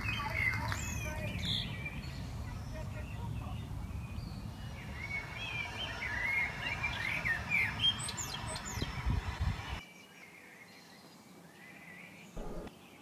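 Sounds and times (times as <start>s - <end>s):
songbirds chirping: 0.0s - 13.0s
microphone rumble: 12.4s - 12.7s.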